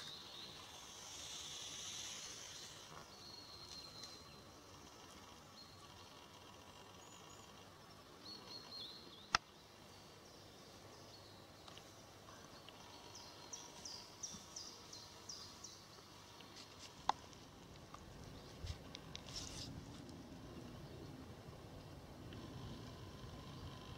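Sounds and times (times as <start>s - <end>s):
small bird chirping: 0.0s - 17.3s.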